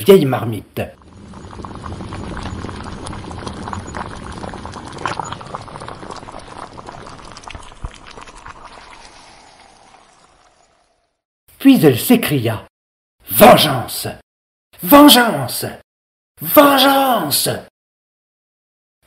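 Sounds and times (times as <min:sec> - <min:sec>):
pot boiling: 0:00.8 - 0:11.2.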